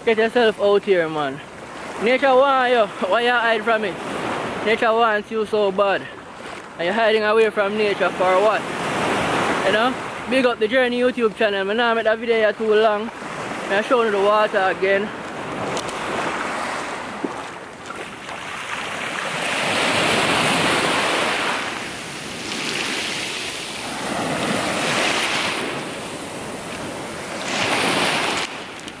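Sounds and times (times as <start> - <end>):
surf washing over stony shore: 12.6 - 29.0.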